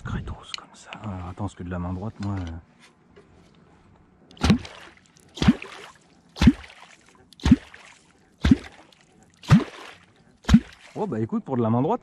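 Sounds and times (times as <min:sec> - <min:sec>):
low plop with splash in water: 0:04.4 - 0:11.1.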